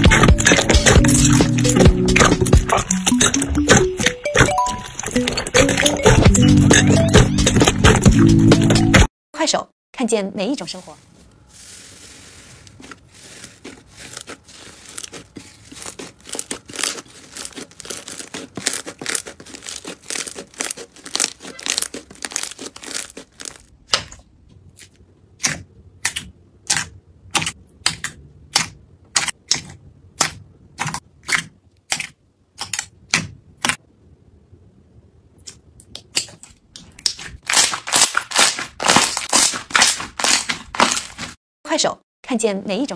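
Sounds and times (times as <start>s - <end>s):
slime crackling and popping: 12.7s - 23.8s, 37.0s - 41.4s.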